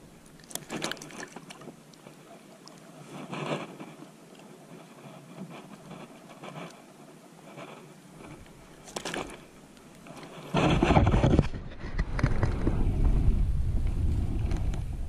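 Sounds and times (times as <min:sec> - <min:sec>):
gloved hands scraping and rustling: 0:00.6 - 0:12.6
wind rumble on microphone: 0:10.2 - 0:15.0.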